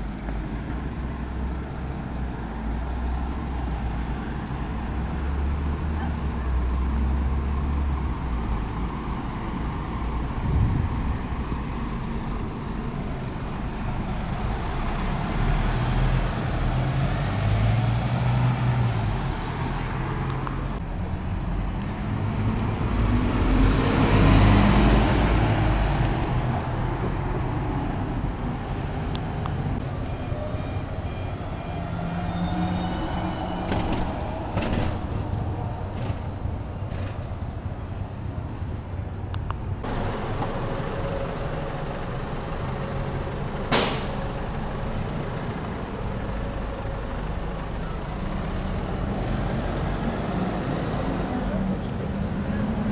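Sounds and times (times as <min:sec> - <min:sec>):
bus passing close: 0:00.0 - 0:52.9
diesel bus engines rumbling: 0:00.0 - 0:52.9
bus hiss: 0:23.4 - 0:24.4, 0:42.4 - 0:44.5.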